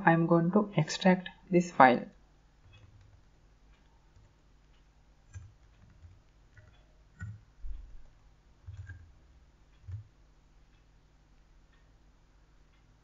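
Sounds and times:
keyboard keystrokes: 5.3 - 7.4, 8.6 - 9.1, 9.8 - 10.1.

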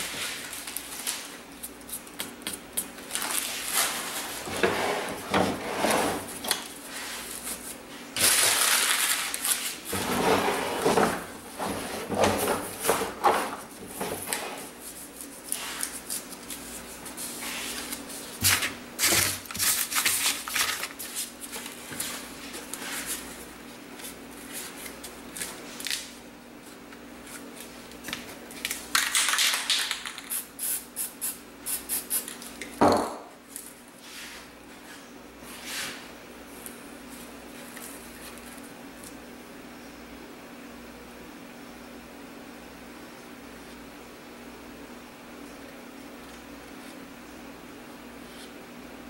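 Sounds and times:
faint steady hum: 0.0 - 49.0
paper rustling and scraping: 3.1 - 28.8.

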